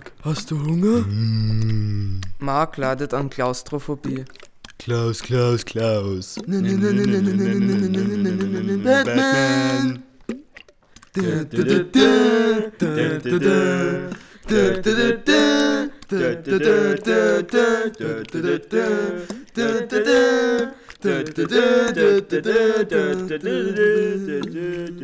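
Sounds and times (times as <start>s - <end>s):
person singing unaccompanied: 5.2s - 10.4s, 11.0s - 25.0s.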